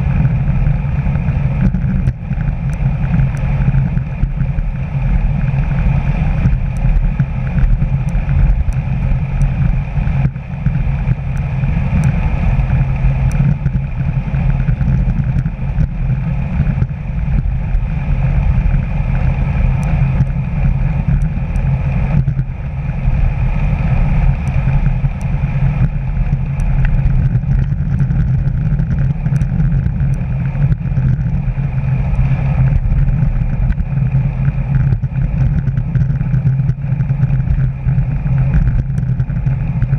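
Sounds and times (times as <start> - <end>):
bicycle tyre noise: 0.0 - 39.9
deep rumble: 0.0 - 39.9
wind rush: 0.0 - 39.9
faint ticks: 5.5 - 12.2, 13.2 - 17.8, 23.8 - 31.4, 32.1 - 39.9.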